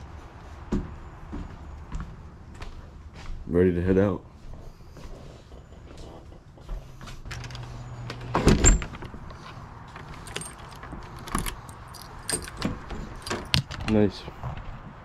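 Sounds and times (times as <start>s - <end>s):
keys jingling: 9.9s - 13.8s
door being handled: 10.0s - 13.9s.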